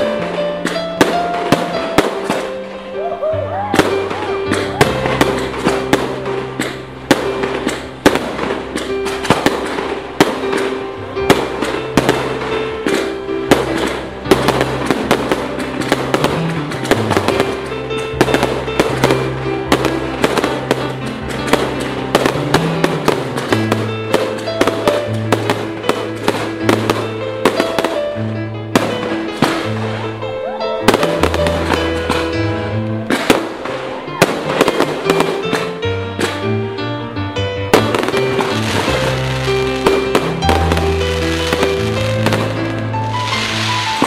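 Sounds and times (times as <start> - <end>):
fireworks bangs and crackles: 0.0 - 36.8, 37.7 - 44.0.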